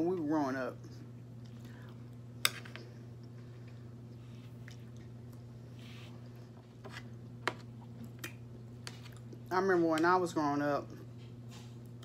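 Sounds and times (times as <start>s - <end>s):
steady low hum: 0.0s - 12.0s
person chewing food: 3.0s - 9.5s.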